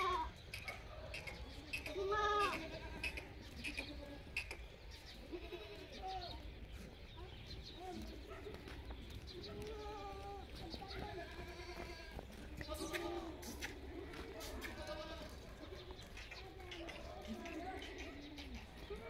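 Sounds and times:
goats bleating: 0:00.0 - 0:00.3, 0:01.8 - 0:04.4, 0:05.2 - 0:06.3, 0:09.5 - 0:15.9.

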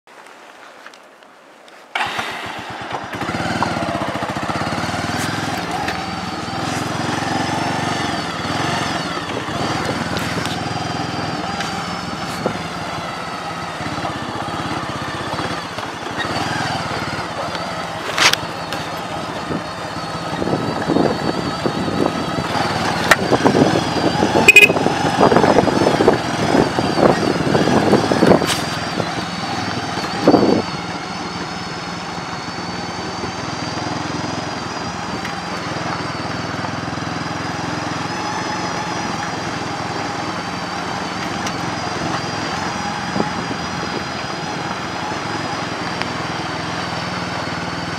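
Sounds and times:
road and wind noise: 0:00.1 - 0:47.9
motorcycle engine running: 0:02.0 - 0:47.9.

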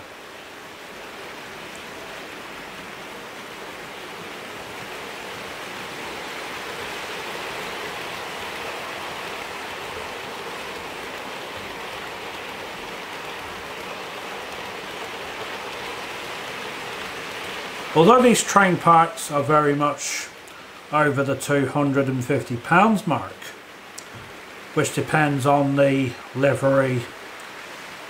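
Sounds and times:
model train wheels rushing on rail: 0:04.6 - 0:20.3.

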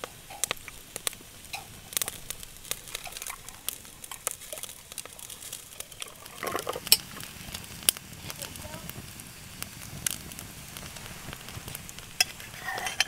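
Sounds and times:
cutlery clatter: 0:12.2 - 0:13.0.

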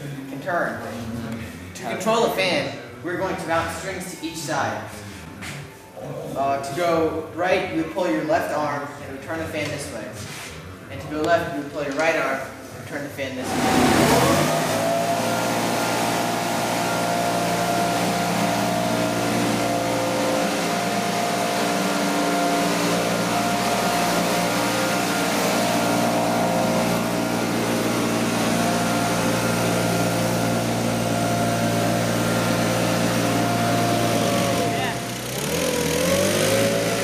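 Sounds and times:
leaf blower engine running: 0:13.4 - 0:37.0.

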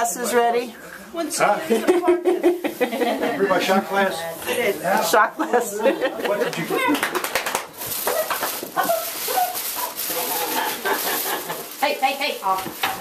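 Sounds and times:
tissue paper and gift bag rustling: 0:07.7 - 0:13.0.

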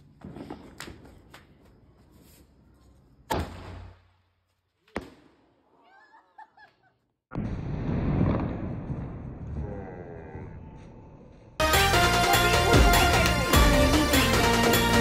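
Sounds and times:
firework launch bang: 0:07.4 - 0:09.4.

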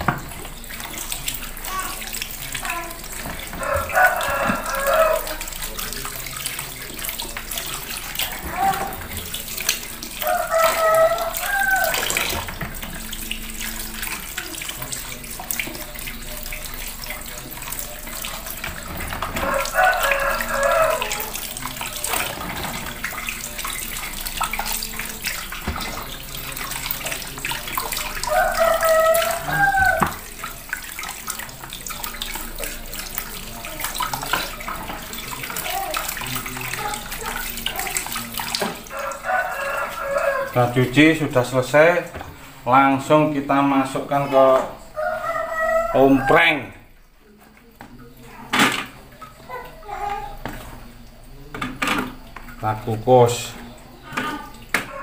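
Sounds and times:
tap water running and splashing: 0:00.0 - 0:55.0
rooster crowing: 0:03.5 - 0:05.4, 0:10.2 - 0:12.5, 0:18.8 - 0:22.0, 0:28.0 - 0:30.3, 0:38.8 - 0:40.6, 0:44.8 - 0:46.7.

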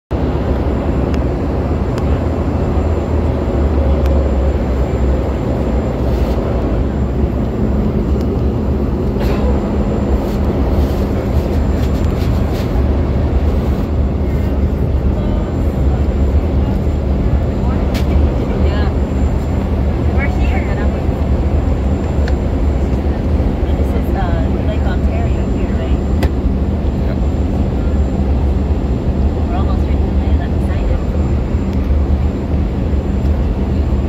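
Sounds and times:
jet engine drone in cabin: 0:00.1 - 0:34.0.

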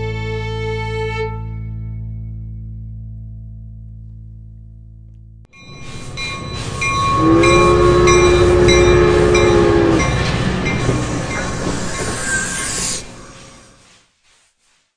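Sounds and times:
train rumbling and clattering: 0:05.6 - 0:13.9
train horn chord: 0:05.7 - 0:11.5
fiddle note: 0:05.9 - 0:11.2.

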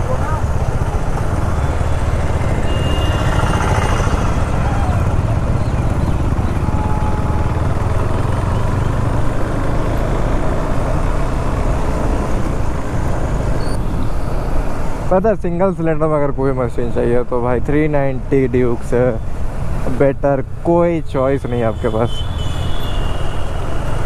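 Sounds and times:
motorcycle engine running: 0:00.0 - 0:10.2
road and wind noise: 0:00.0 - 0:24.0.

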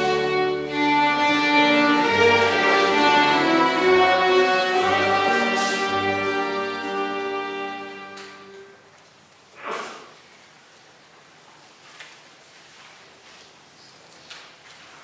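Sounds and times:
folk dance tune on fiddles: 0:00.0 - 0:08.7.

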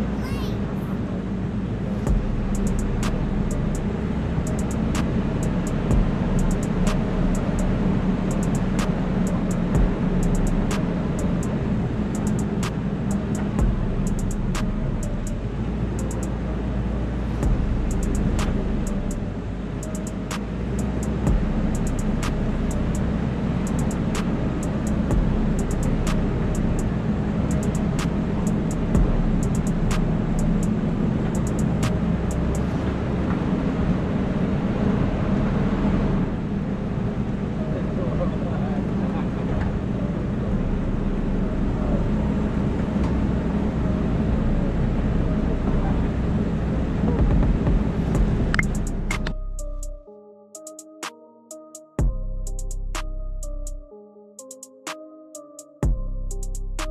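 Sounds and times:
off-road vehicle engine running: 0:00.0 - 0:50.0, 0:55.8 - 0:56.9
ride noise: 0:00.0 - 0:50.0
music with light regular beat: 0:02.1 - 0:16.4, 0:17.4 - 0:32.7, 0:47.2 - 0:50.0, 0:50.6 - 0:56.9.

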